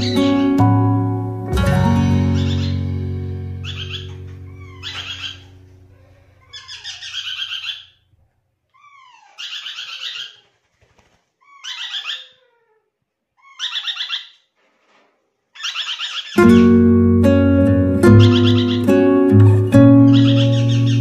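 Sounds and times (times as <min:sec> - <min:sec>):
parrot chattering calls: 0:02.0 - 0:03.0, 0:03.6 - 0:08.0, 0:08.8 - 0:10.4, 0:11.4 - 0:12.6, 0:13.4 - 0:14.4, 0:15.6 - 0:16.8, 0:18.1 - 0:19.0, 0:20.0 - 0:21.0.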